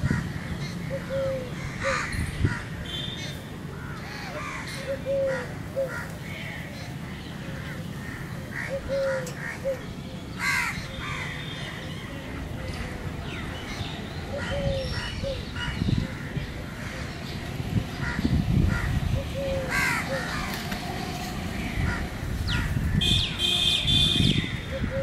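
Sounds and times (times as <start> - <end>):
crows cawing: 0.0 - 2.8, 3.8 - 6.9, 7.6 - 9.8, 10.4 - 11.8, 18.0 - 20.6, 21.6 - 23.4.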